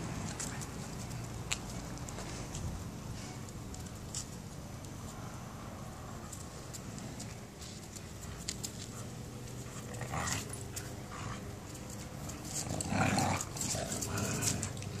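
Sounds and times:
dogs growling playfully: 0:09.7 - 0:11.5, 0:12.2 - 0:14.9.

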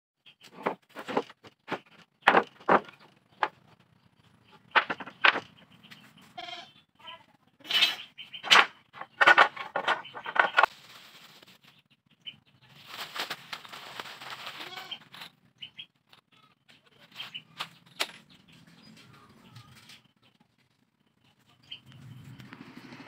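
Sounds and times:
wooden boards clattering: 0:00.4 - 0:03.9, 0:04.5 - 0:05.7, 0:08.4 - 0:10.7
goat bleating: 0:06.3 - 0:06.8, 0:14.6 - 0:15.0.

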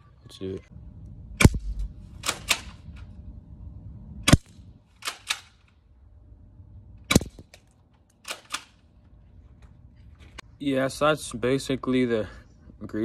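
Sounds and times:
airsoft shotgun shots: 0:01.4 - 0:02.8, 0:04.2 - 0:05.6, 0:07.1 - 0:07.5.

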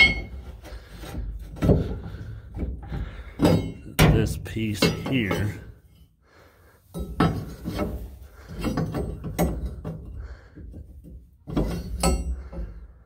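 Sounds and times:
steel brackets knocking and clunking: 0:00.0 - 0:05.7, 0:06.9 - 0:13.0.

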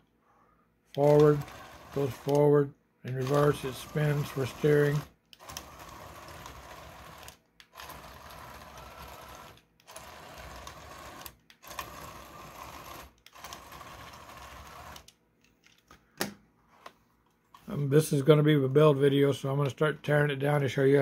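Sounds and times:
small gear motor whirring: 0:00.9 - 0:15.1.

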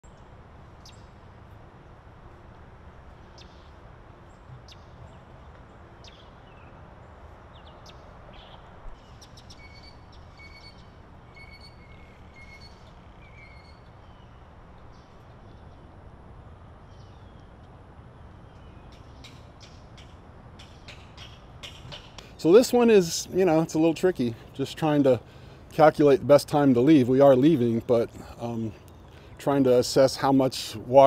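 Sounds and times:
birds chirping: 0:03.1 - 0:31.0
two-note bird calls: 0:09.5 - 0:14.4.

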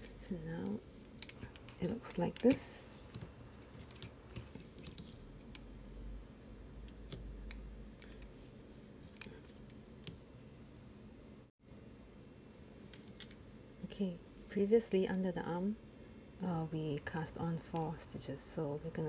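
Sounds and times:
knitting needles clicking: 0:00.0 - 0:05.7, 0:06.8 - 0:08.3.

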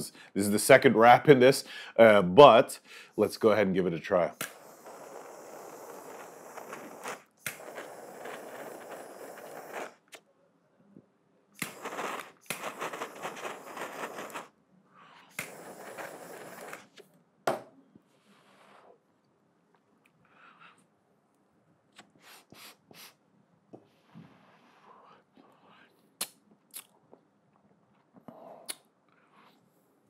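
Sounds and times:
torch lighter hissing: 0:04.3 - 0:10.2, 0:11.6 - 0:14.5, 0:15.3 - 0:17.0
lighter clicks: 0:04.4 - 0:10.0, 0:15.4 - 0:16.8.

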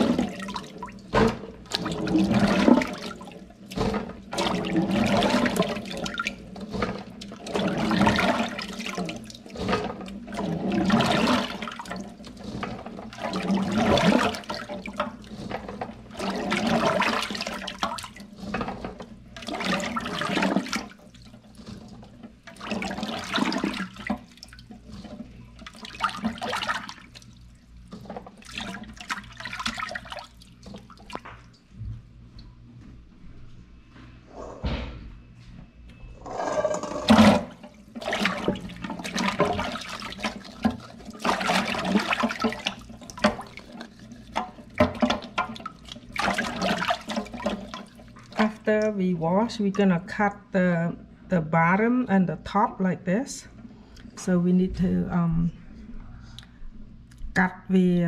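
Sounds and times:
hands splashing water in a sink: 0:00.0 - 0:31.7, 0:37.1 - 0:48.9.

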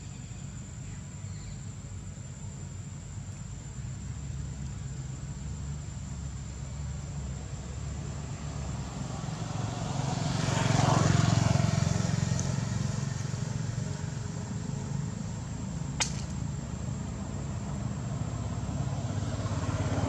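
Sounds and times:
sharp click: 0:16.0 - 0:16.4.

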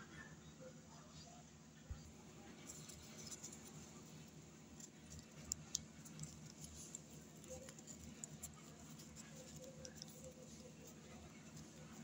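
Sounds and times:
paper rustling and crinkling: 0:04.8 - 0:12.0.

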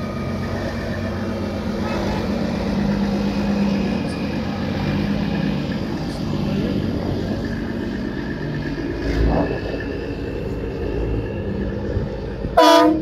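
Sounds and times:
truck diesel engine running: 0:00.0 - 0:13.0
loud truck horn blast: 0:12.6 - 0:13.0.

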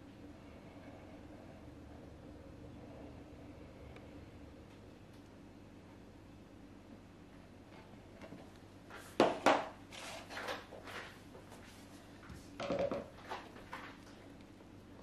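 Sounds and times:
plastic jugs knocking and clattering: 0:12.6 - 0:14.0.

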